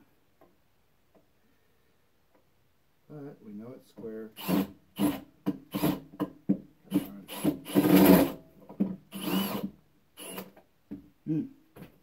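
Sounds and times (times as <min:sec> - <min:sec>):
cordless drill driving screws: 0:04.3 - 0:06.1, 0:06.9 - 0:08.4, 0:09.1 - 0:10.6.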